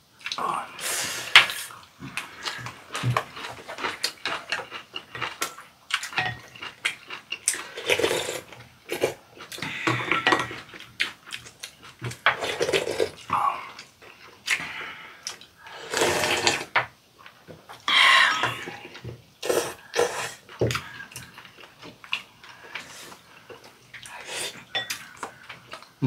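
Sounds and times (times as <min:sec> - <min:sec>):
chewing: 0:02.0 - 0:17.9, 0:18.5 - 0:26.0
slurping soup: 0:07.5 - 0:09.9, 0:15.6 - 0:16.8, 0:18.1 - 0:21.4.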